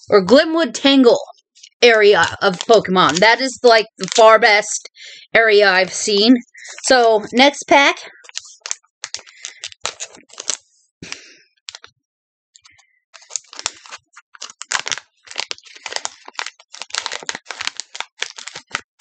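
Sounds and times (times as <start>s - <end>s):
wrapper tearing and crinkling: 4.0s - 4.3s, 8.2s - 11.9s, 12.7s - 19.0s.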